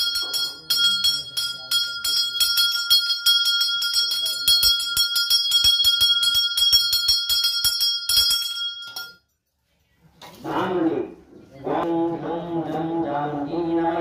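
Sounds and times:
hand bell rung rapidly: 0:00.0 - 0:09.3.

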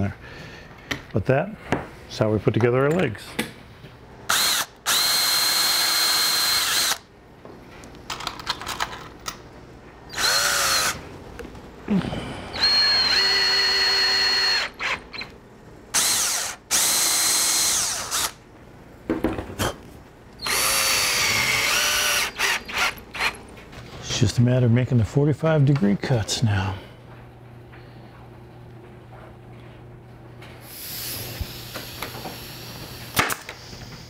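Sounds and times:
cordless drill whining: 0:04.3 - 0:07.0, 0:10.1 - 0:11.0, 0:12.5 - 0:15.3, 0:16.0 - 0:18.4, 0:20.4 - 0:23.4.

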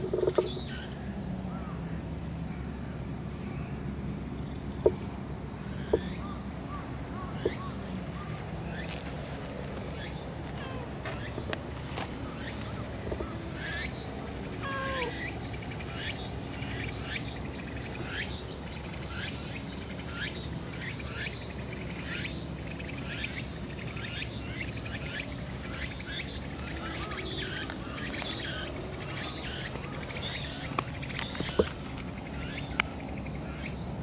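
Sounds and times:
animals chirping: 0:12.2 - 0:34.0
low animal call: 0:14.5 - 0:15.5.

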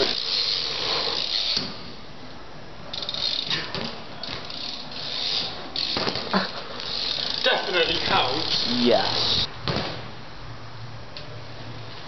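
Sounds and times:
bike freewheel hub ticking: 0:00.0 - 0:01.7, 0:02.9 - 0:09.4.

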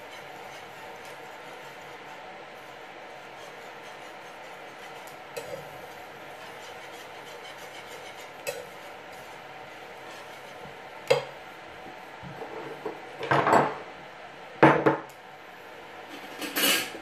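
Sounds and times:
whisk scraping in sauce: 0:00.0 - 0:11.6.

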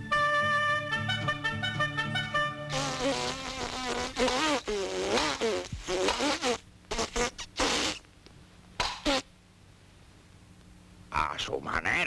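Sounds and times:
music with held notes: 0:00.0 - 0:03.1
cartoon fly buzzing: 0:02.7 - 0:08.0, 0:08.8 - 0:09.3.

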